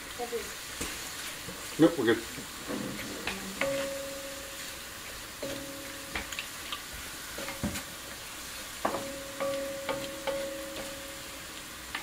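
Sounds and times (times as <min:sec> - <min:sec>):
meat sizzling: 0:00.0 - 0:12.0
wok ringing: 0:03.6 - 0:06.6, 0:08.8 - 0:12.0.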